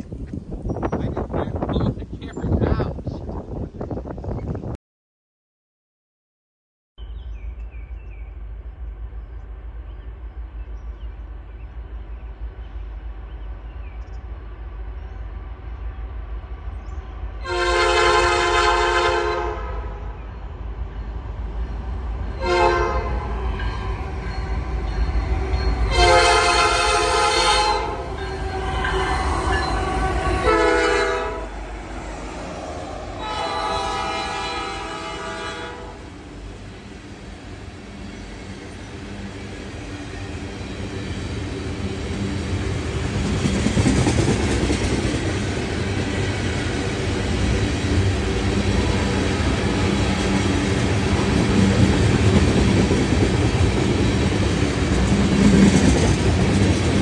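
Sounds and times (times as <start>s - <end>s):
freight train rumbling past: 0.0s - 4.7s, 7.1s - 57.0s
locomotive horn blasts: 17.4s - 20.2s, 22.4s - 23.9s, 25.8s - 31.6s, 33.2s - 36.1s.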